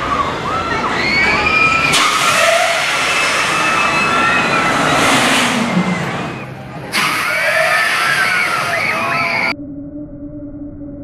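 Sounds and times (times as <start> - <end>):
riders screaming: 0.1 - 6.0, 7.0 - 9.5
loud rushing noise: 1.8 - 9.5.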